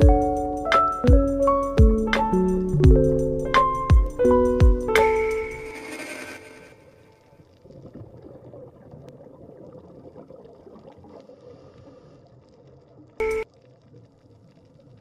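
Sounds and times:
underwater water noise: 5.0s - 15.0s.

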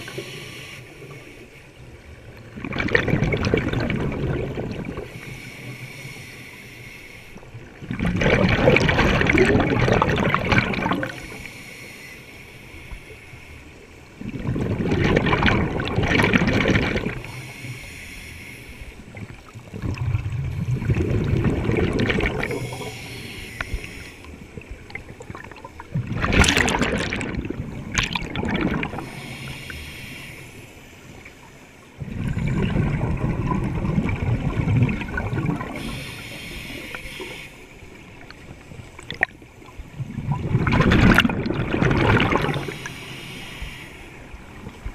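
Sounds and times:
hissing regulator inhalations: 0.0s - 1.8s, 5.0s - 7.5s, 11.0s - 14.0s, 17.2s - 19.2s, 22.3s - 24.6s, 28.9s - 31.6s, 35.6s - 38.0s, 42.4s - 44.5s
bubbling regulator exhalations: 2.6s - 5.1s, 7.9s - 11.2s, 14.2s - 17.3s, 19.7s - 24.0s, 24.9s - 29.3s, 32.0s - 37.3s, 40.1s - 42.9s.

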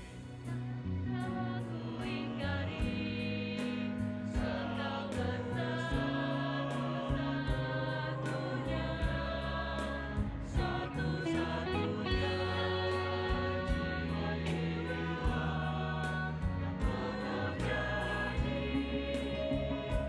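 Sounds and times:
bass line: 0.0s - 20.0s
choir singing harmonies: 0.0s - 20.0s
steady drum beat: 2.0s - 20.0s.

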